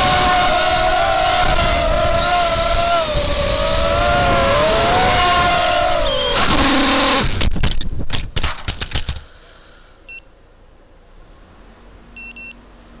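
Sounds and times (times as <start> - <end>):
drone motors whining: 0.0 - 7.4
drone crashing on concrete: 4.3 - 9.8
short electronic beeps: 12.2 - 12.6.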